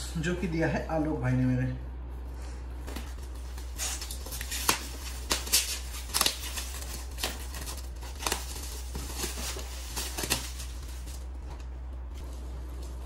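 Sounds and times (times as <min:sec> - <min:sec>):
wrapping paper ripping and crinkling: 0:03.0 - 0:11.6.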